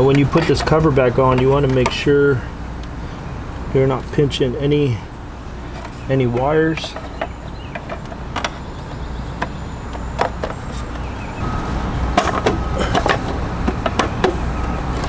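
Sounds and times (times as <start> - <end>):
steady low hum: 0.0 - 15.0
hard plastic clicks and knocks: 6.3 - 8.6, 9.4 - 11.1, 12.2 - 14.4.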